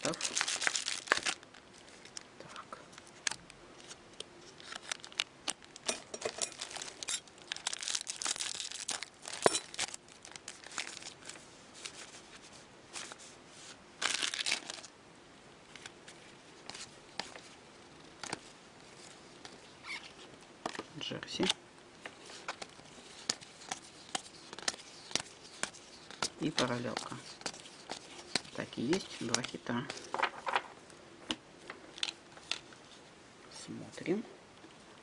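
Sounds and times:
foil wrappers crinkling and tearing: 0:00.0 - 0:02.2, 0:03.2 - 0:12.1, 0:14.0 - 0:14.9
cards being handled: 0:15.7 - 0:32.9.

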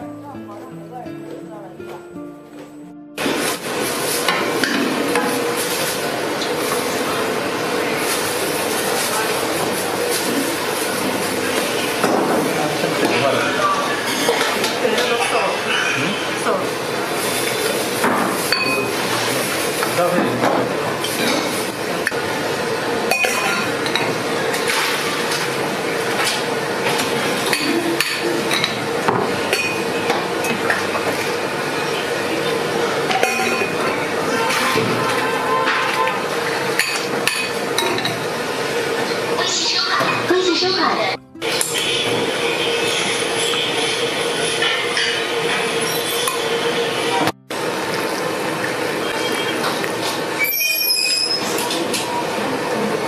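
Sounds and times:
steel bowls and utensils clinking: 0:17.2 - 0:20.0, 0:23.1 - 0:25.5, 0:27.4 - 0:31.3, 0:33.1 - 0:38.2.

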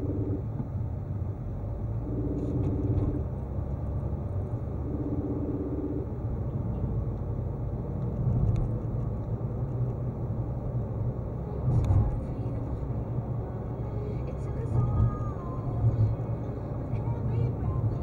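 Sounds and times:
engine and tyre rumble: 0:00.0 - 0:18.0.

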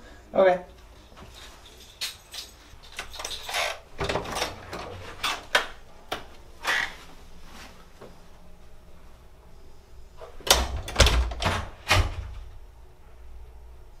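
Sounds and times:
wooden door unlatched and opened: 0:02.9 - 0:05.8, 0:10.4 - 0:12.4.

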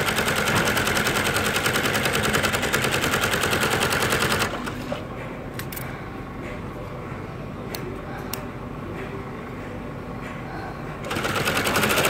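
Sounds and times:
sewing machine stitching: 0:00.0 - 0:05.0, 0:11.0 - 0:12.0.

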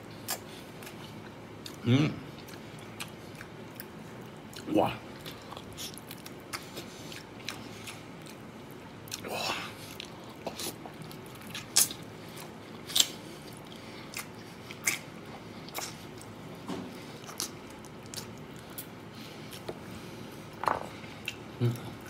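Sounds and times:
person biting and chewing: 0:09.1 - 0:16.4, 0:17.0 - 0:18.9.

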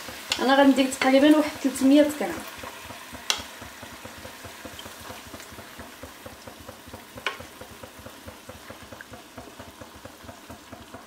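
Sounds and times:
food sizzling in a frying pan: 0:00.0 - 0:11.0.

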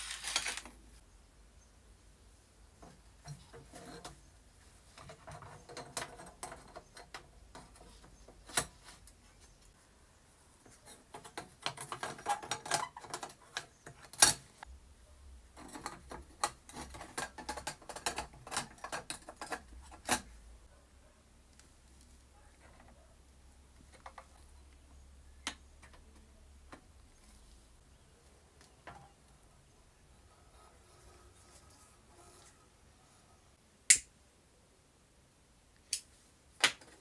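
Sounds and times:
lamp parts clicking and scraping: 0:04.9 - 0:09.1, 0:10.8 - 0:14.7, 0:15.6 - 0:20.4.

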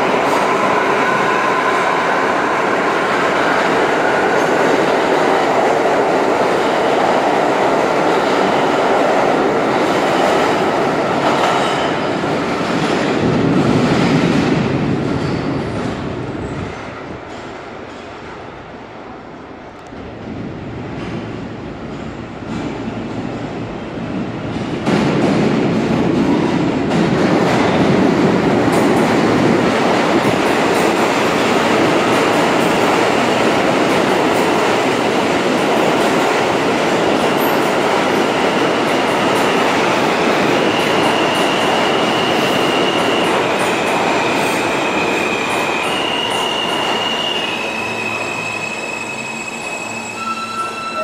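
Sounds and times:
subway train rumble and clatter: 0:00.0 - 0:51.0.

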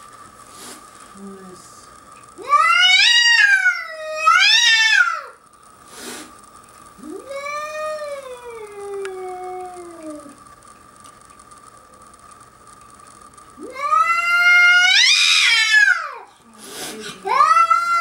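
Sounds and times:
cat yowling: 0:02.4 - 0:05.3, 0:13.6 - 0:16.2, 0:17.3 - 0:18.0.

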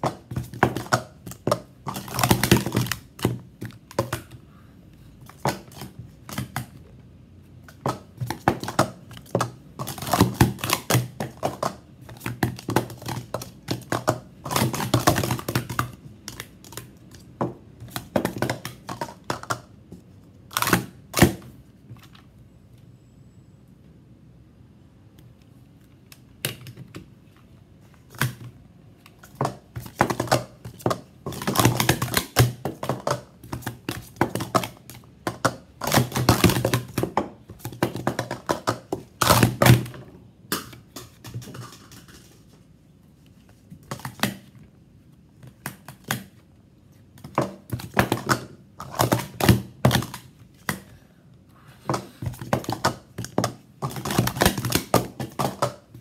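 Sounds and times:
plastic cups clacking: 0:00.0 - 0:04.4, 0:07.6 - 0:21.6, 0:29.1 - 0:42.6, 0:47.1 - 0:50.9, 0:51.8 - 0:56.0.

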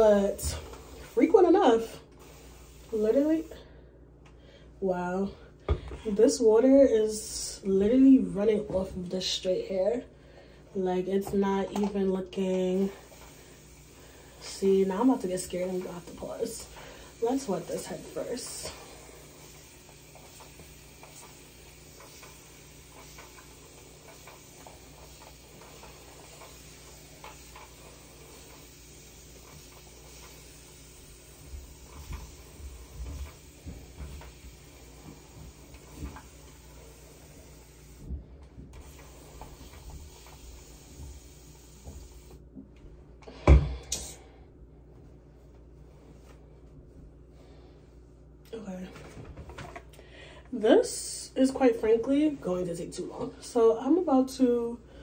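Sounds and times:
spray bottle spritzing: 0:17.2 - 0:38.0, 0:38.8 - 0:42.4.

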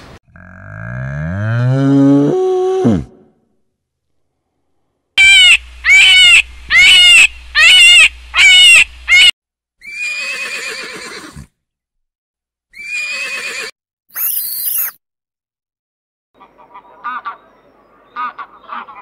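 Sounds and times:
horse whinnying: 0:09.8 - 0:11.5, 0:12.7 - 0:13.8.

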